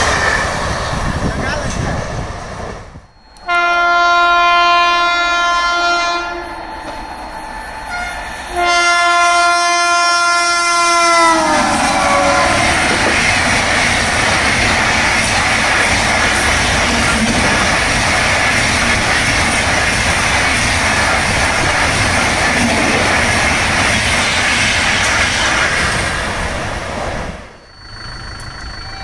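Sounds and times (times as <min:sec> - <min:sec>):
train wheels on rails: 0:00.0 - 0:29.0
train horn blasts: 0:03.4 - 0:06.8, 0:07.9 - 0:13.0.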